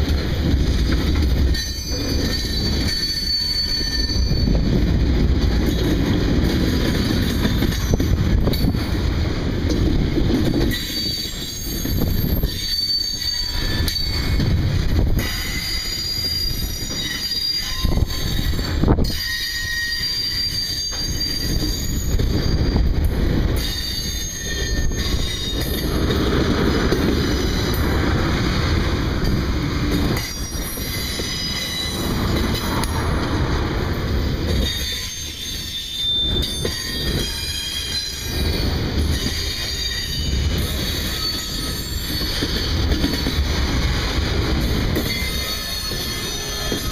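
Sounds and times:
steel wheels rumbling on rail: 0.0s - 46.9s
high-pitched wheel squeal: 1.5s - 4.6s, 10.7s - 14.4s, 15.2s - 22.8s, 30.2s - 33.0s, 34.6s - 43.4s.

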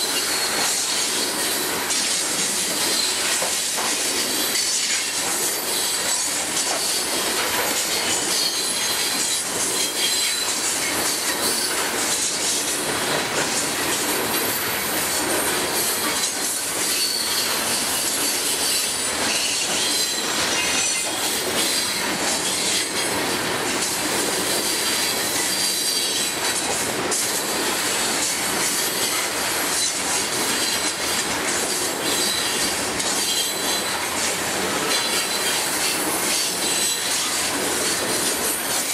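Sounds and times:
train wheels rumbling on rails: 0.0s - 38.9s
high-pitched wheel squeals: 16.9s - 20.8s.

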